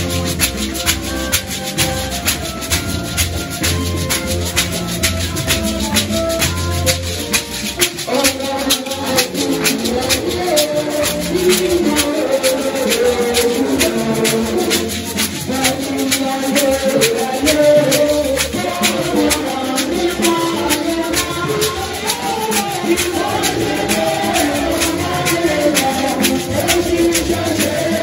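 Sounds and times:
gourd rattles shaken: 0.0 - 28.0
voices singing: 0.0 - 28.0.

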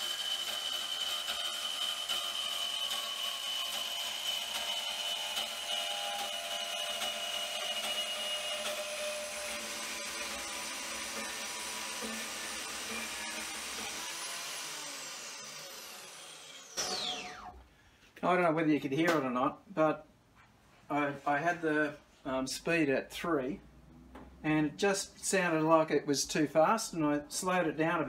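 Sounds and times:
blade rasping through metal: 0.0 - 17.4
bandsaw motor and blade whine: 0.0 - 17.6.

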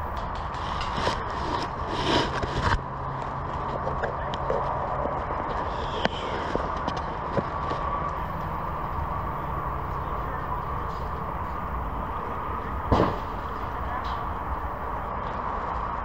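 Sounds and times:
outdoor background hiss: 0.0 - 0.3, 8.2 - 15.1.

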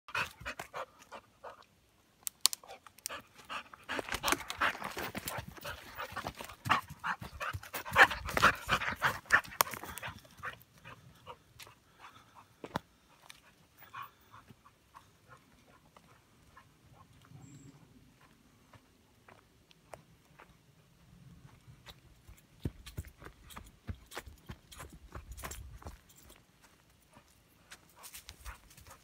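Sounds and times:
dog panting: 0.1 - 1.7, 3.1 - 17.3, 27.1 - 29.0
paws running on loose dirt: 3.1 - 20.5, 21.3 - 29.0.

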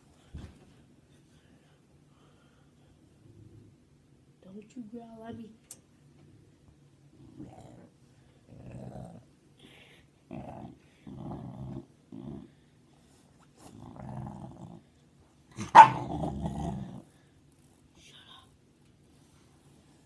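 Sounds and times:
puppy growling: 8.5 - 9.3, 10.3 - 12.6, 13.6 - 14.9, 15.6 - 17.1
puppy bark-like outburst: 15.6 - 16.1.

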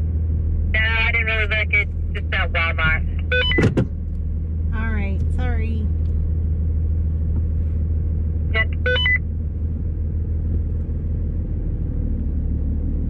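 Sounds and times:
diesel engine rumbling: 0.0 - 13.0
electronic beeps: 3.2 - 3.7, 8.6 - 9.2.

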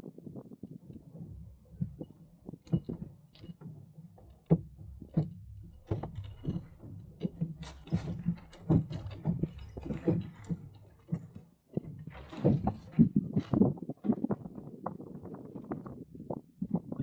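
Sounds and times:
water slapping a hull: 0.9 - 15.0
hollow knocks on sailboat hull: 1.1 - 14.4.

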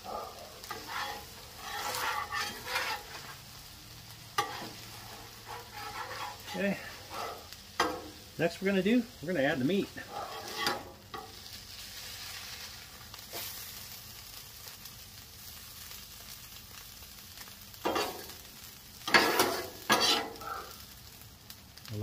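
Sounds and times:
meat sizzling on griddle: 0.0 - 22.0
metal spatula scraping steel: 0.6 - 3.4, 4.4 - 8.2, 10.0 - 11.4, 17.9 - 18.3, 19.1 - 20.4.

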